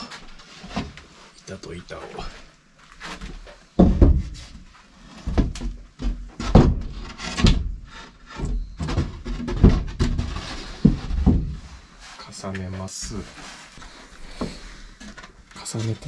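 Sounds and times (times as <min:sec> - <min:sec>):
wooden boards knocking together: 0:03.8 - 0:04.4, 0:05.2 - 0:11.7.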